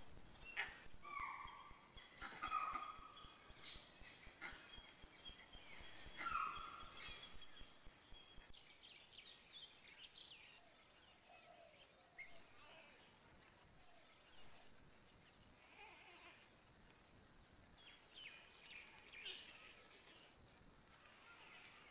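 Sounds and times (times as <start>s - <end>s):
faint background hiss: 0.0s - 21.9s.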